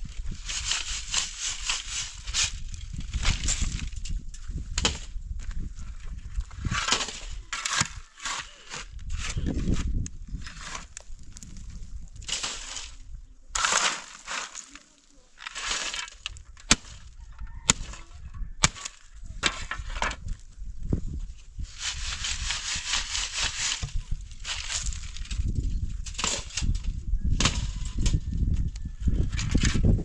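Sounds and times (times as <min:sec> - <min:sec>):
earth shaken through a sieve: 0:00.0 - 0:04.0, 0:13.6 - 0:16.4, 0:21.6 - 0:26.9
shovel scraping stony ground: 0:00.0 - 0:11.6, 0:12.2 - 0:20.4, 0:21.6 - 0:28.2, 0:29.2 - 0:30.0.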